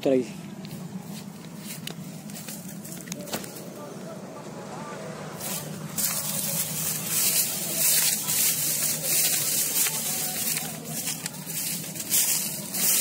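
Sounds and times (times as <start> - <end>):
engine running: 0.0 - 13.0
loud rushing hiss: 5.3 - 13.0.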